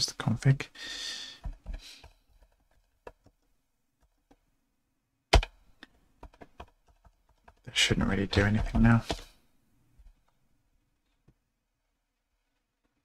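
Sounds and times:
computer keyboard typing: 0:06.2 - 0:07.7.

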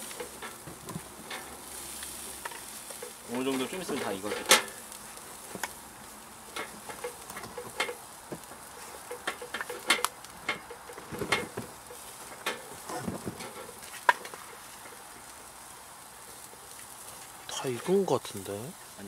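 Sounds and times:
ribs sizzling on a grill: 0:00.0 - 0:19.0.

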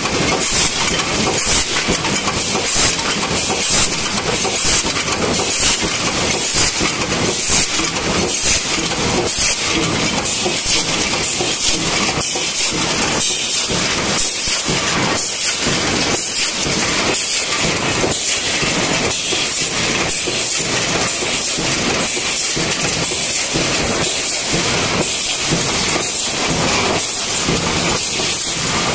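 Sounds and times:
machinery hiss and rattle: 0:00.0 - 0:28.9
sheet-metal press stamping: 0:00.0 - 0:28.9.

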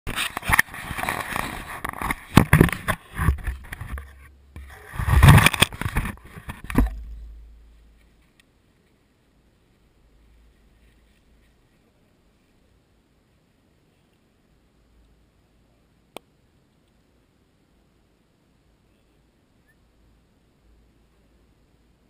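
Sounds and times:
camera handling scrapes and knocks: 0:00.1 - 0:07.2.

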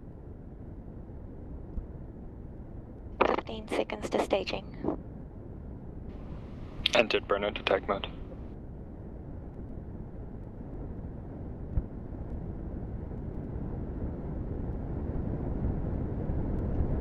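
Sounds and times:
rocket engines rumbling: 0:03.2 - 0:05.0, 0:06.1 - 0:08.5.

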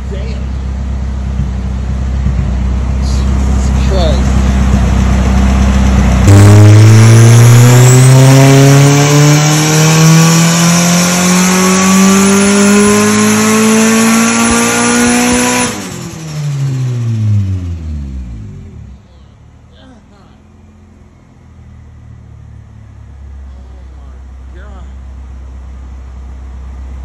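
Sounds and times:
turbocharged engine revving: 0:00.0 - 0:19.6.

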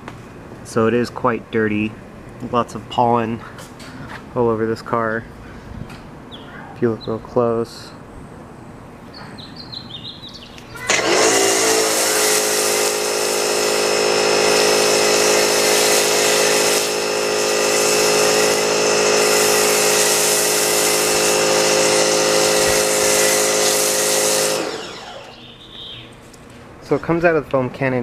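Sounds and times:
pressure washer motor whine: 0:10.9 - 0:25.6
hiss of spray: 0:11.6 - 0:24.7.

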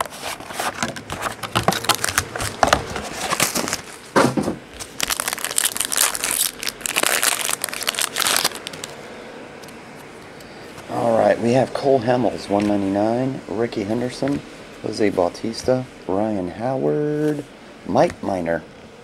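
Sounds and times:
foil wrapper crinkling and tearing: 0:00.0 - 0:09.0.

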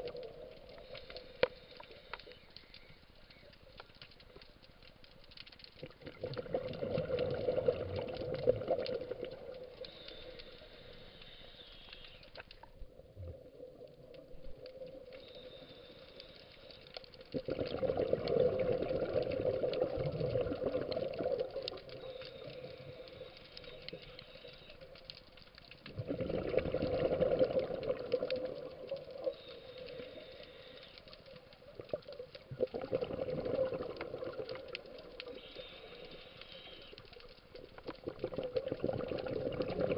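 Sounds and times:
diver's bubbles gurgling: 0:05.8 - 0:09.9, 0:17.2 - 0:24.1, 0:25.8 - 0:30.1, 0:31.6 - 0:35.4, 0:37.0 - 0:39.9.

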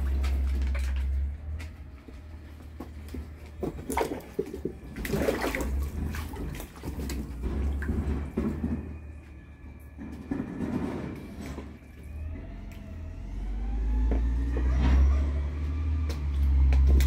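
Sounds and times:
geese splashing in water: 0:03.6 - 0:08.0.

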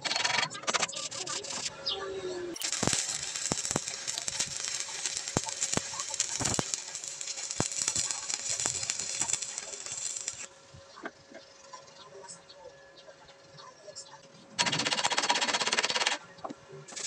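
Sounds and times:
arc welding crackling sizzle: 0:00.0 - 0:12.4, 0:14.6 - 0:17.0
spatter pops: 0:02.6 - 0:10.5.

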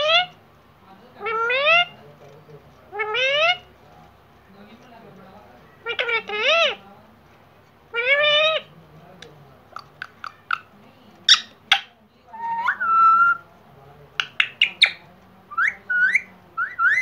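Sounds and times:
parrot clicks and chirps: 0:09.7 - 0:11.9, 0:14.2 - 0:17.0
parrot whistling: 0:11.3 - 0:13.4, 0:14.2 - 0:17.0.

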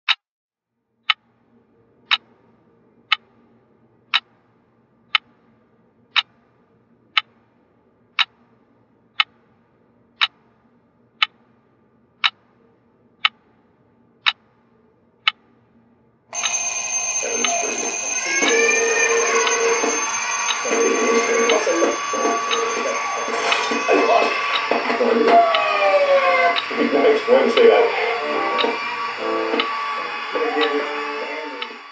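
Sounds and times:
alarm bells ringing: 0:16.4 - 0:26.4
alarm clock ticking: 0:16.4 - 0:30.9.

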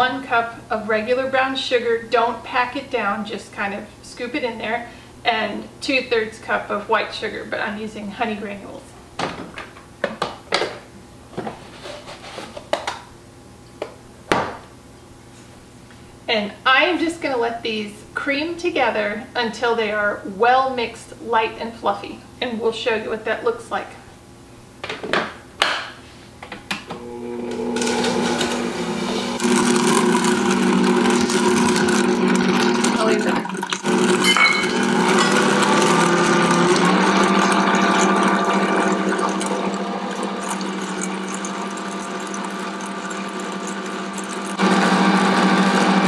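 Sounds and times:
stand mixer motor hum: 0:27.0 - 0:46.0.

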